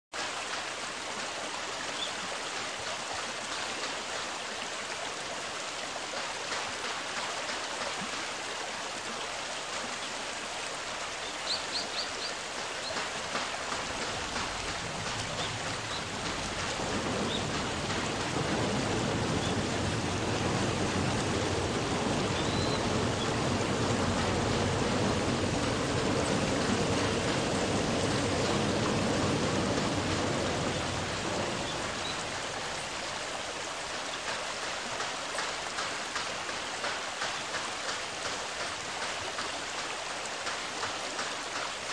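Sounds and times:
flowing water: 0.1 - 41.9
low rumble: 13.7 - 33.0.

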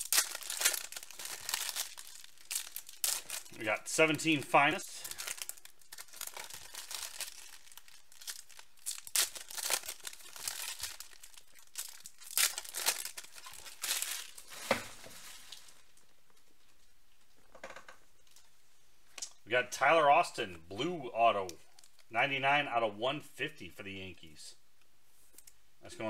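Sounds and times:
foil wrappers crinkling and tearing: 0.0 - 16.1.

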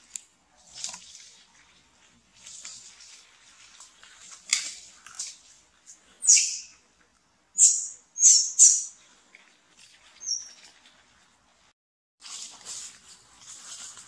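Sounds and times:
baby monkey squealing: 6.2 - 6.7, 7.6 - 8.9.

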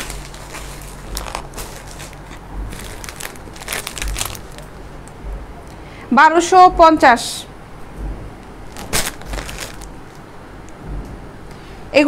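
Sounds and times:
plastic packaging crinkling: 0.0 - 4.8, 8.7 - 10.2.

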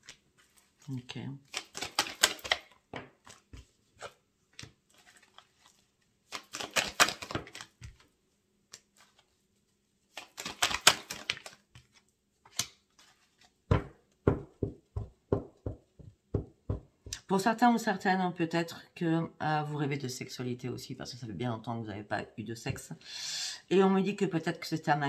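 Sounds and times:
cards being shuffled: 0.0 - 8.1, 8.7 - 9.4, 10.0 - 14.0.

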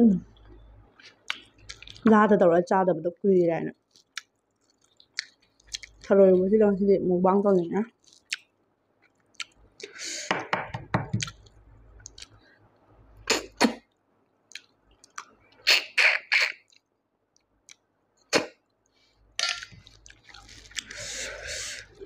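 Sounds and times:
chewing: 0.4 - 2.1, 3.8 - 6.1, 7.9 - 10.0, 11.2 - 12.4, 14.5 - 15.6, 18.8 - 22.0.

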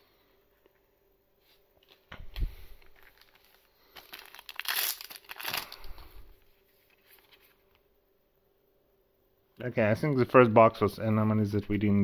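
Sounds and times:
foil wrapper crinkling: 2.7 - 7.8.

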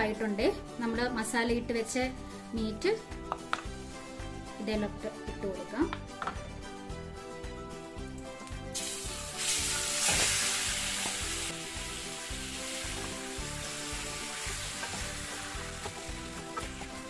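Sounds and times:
meat sizzling in hot oil: 8.8 - 17.0.

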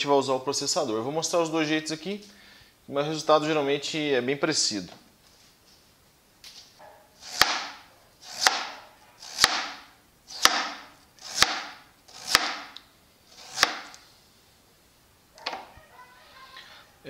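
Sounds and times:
knife slicing potato on cutting board: 7.2 - 14.0.

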